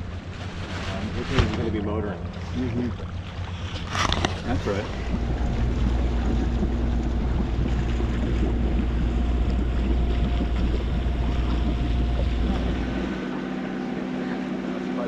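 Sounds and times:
faint engine hum: 0:00.0 - 0:15.0
water rushing past a hull: 0:00.0 - 0:15.0
wind buffeting the microphone: 0:03.7 - 0:13.1.

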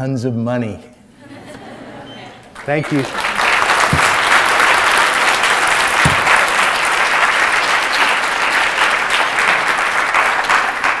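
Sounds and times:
audience applauding: 0:01.5 - 0:11.0
low thump: 0:03.8 - 0:04.4, 0:06.0 - 0:06.5.

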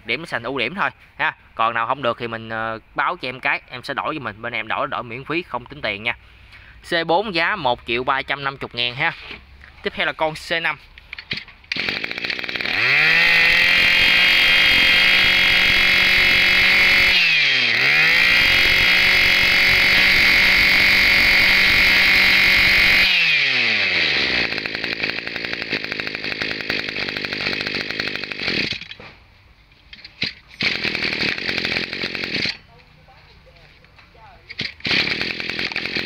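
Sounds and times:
brush cutter engine revving: 0:11.7 - 0:29.0, 0:30.6 - 0:32.9, 0:34.5 - 0:36.0.

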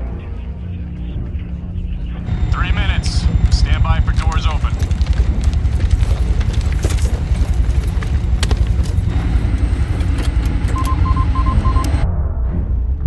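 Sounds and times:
helicopter rotors and engines droning: 0:00.0 - 0:12.0
short electronic beeps: 0:10.6 - 0:12.0.

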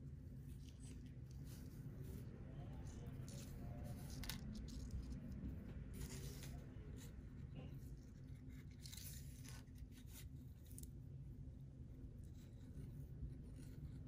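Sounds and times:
low steady hum: 0:00.0 - 0:14.0
fishing tackle rustling and scratching: 0:00.4 - 0:11.0.

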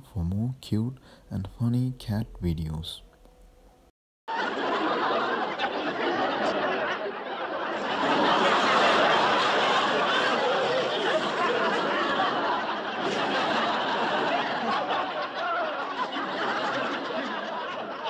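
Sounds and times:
people laughing and chattering: 0:04.3 - 0:18.0.

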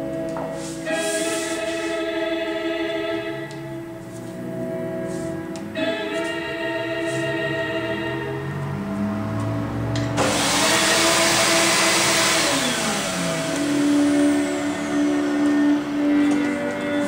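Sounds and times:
choral music: 0:00.0 - 0:17.0
vacuum suction motor hissing: 0:10.2 - 0:16.8.

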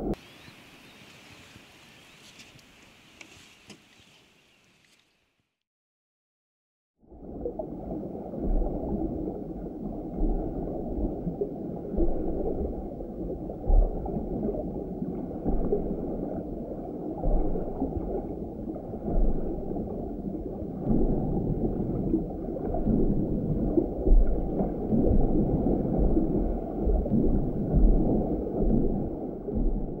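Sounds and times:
muffled underwater rumble and sloshing: 0:07.0 - 0:30.0.

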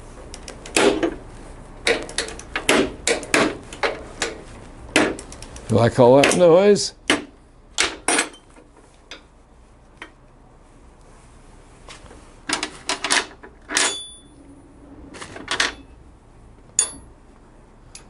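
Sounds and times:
wrench clinking on bolts: 0:16.8 - 0:17.1.

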